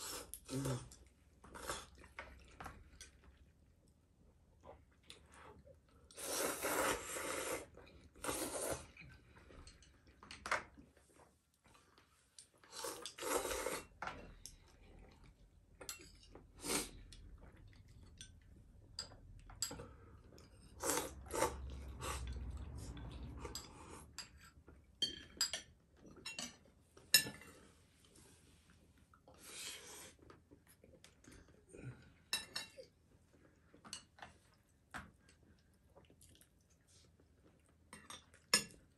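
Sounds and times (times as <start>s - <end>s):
noodles being slurped: 6.1s - 9.2s, 12.6s - 14.0s, 20.7s - 23.4s.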